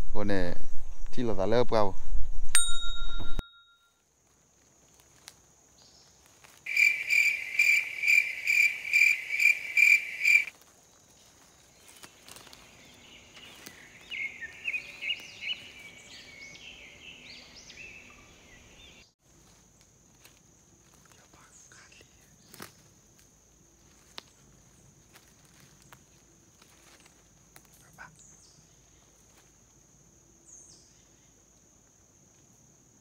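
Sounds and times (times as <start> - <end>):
high insect buzz: 4.2 - 28.2
faint uneven chirping calls: 4.9 - 19.2, 20.8 - 23.0, 23.8 - 31.5
repeated high chirps: 6.7 - 10.5.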